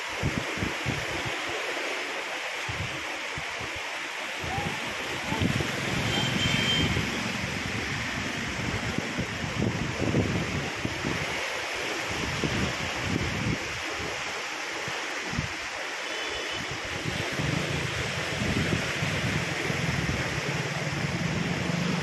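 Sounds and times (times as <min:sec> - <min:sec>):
floodwater rushing and churning: 0:00.0 - 0:22.0
wind buffeting microphone: 0:04.4 - 0:06.2, 0:06.8 - 0:11.4, 0:16.9 - 0:22.0.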